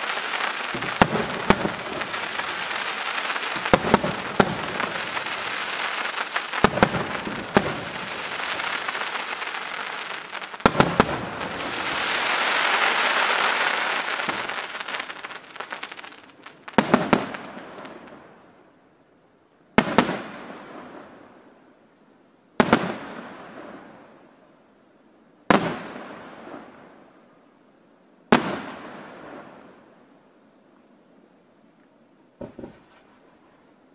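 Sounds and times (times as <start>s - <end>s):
fireworks bursting: 0.0s - 18.4s, 19.8s - 21.2s, 22.6s - 23.9s, 25.5s - 26.8s, 28.3s - 29.6s, 32.4s - 33.4s.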